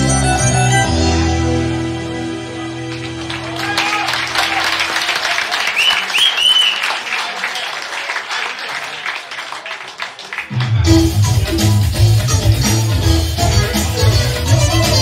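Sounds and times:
band with electric guitar and bass: 0:00.0 - 0:05.1, 0:10.5 - 0:15.0
audience applauding and cheering: 0:02.8 - 0:12.4
whistles: 0:05.6 - 0:07.0.

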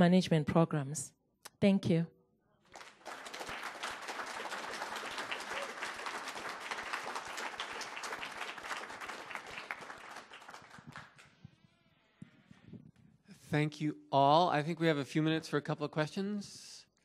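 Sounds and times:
audience applauding: 0:02.7 - 0:11.3.

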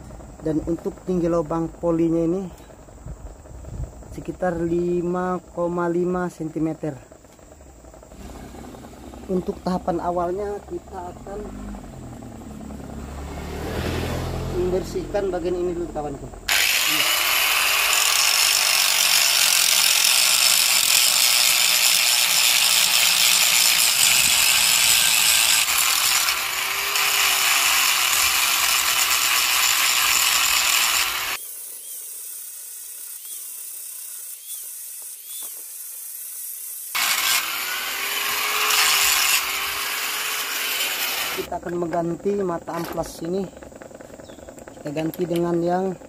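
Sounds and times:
angle grinder sanding metal: 0:14.6 - 0:41.6.

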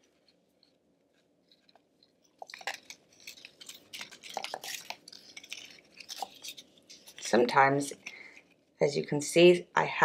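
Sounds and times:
cardboard rustling and scraping: 0:00.0 - 0:07.6.

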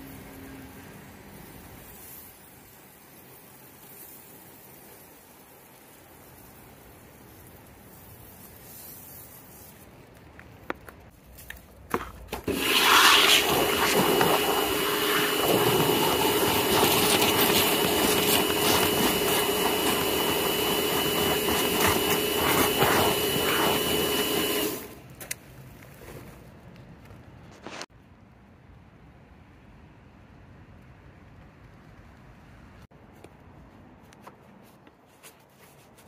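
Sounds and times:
machine hissing and humming: 0:12.4 - 0:25.0.

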